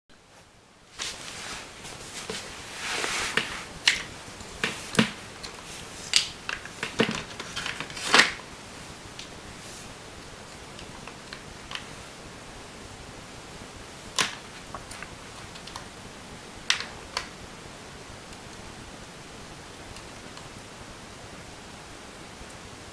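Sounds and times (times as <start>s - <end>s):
faint steady hiss: 0.1s - 22.9s
hands handling battery and wires: 3.3s - 8.4s.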